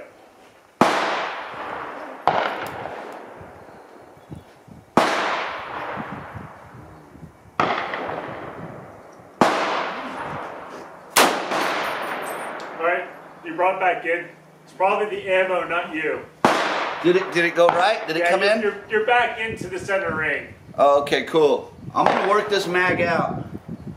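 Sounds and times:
rifle shots echoing: 0.8 - 4.2, 5.0 - 6.7, 7.6 - 13.4, 16.3 - 18.6, 22.0 - 22.5.

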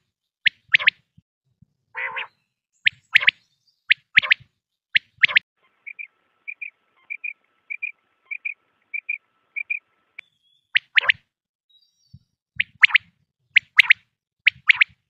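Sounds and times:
quail calling: 2.0 - 4.4, 5.0 - 9.8.

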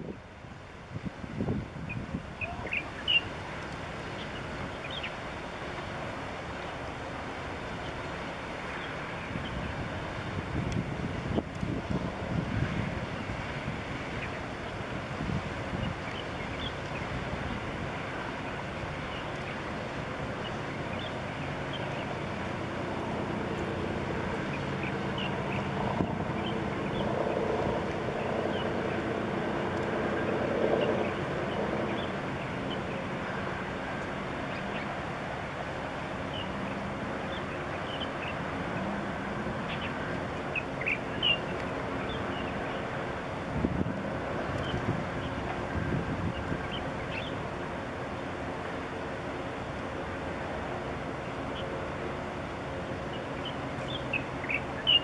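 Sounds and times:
ship engine drone: 2.3 - 55.0
bird chirps: 53.4 - 55.0.

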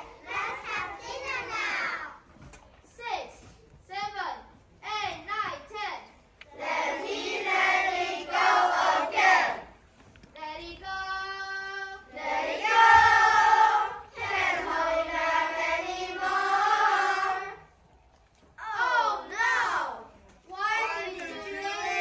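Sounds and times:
children chanting in unison: 6.5 - 9.7, 11.8 - 17.7, 20.6 - 22.0.

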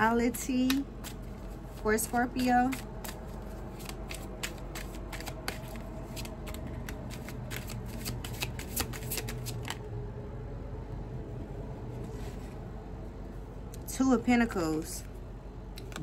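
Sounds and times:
low steady hum: 0.0 - 16.0
cards being shuffled: 0.5 - 9.9.

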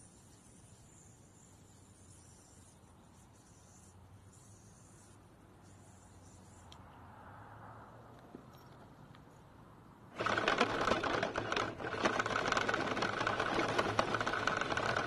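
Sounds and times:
rattle driving over gravel: 10.1 - 15.0
toy car motor whine: 10.2 - 15.0.

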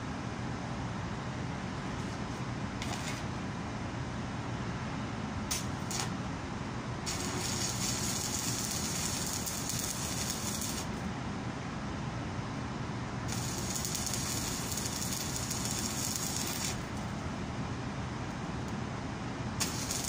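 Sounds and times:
welding arc sizzling crackle: 5.5 - 6.2, 7.0 - 11.0, 13.3 - 17.1, 19.6 - 20.0.

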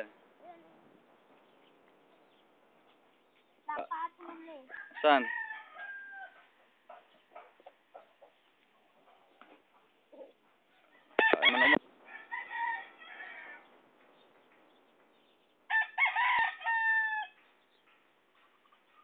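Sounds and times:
rooster crowing: 4.7 - 6.5, 10.9 - 13.7, 15.7 - 17.4.

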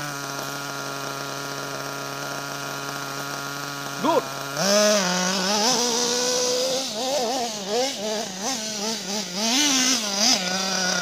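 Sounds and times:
small engine revving: 0.0 - 11.0.

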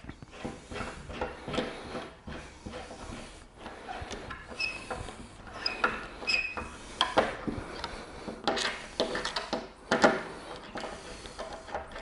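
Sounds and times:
hand tool clicking and scraping: 0.0 - 12.0
short high squeaks: 3.8 - 6.7.

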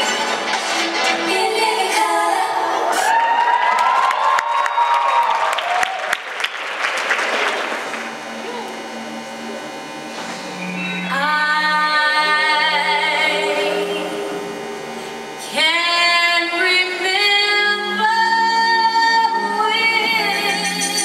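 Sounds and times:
woman singing long notes: 11.1 - 14.6, 15.4 - 21.0.

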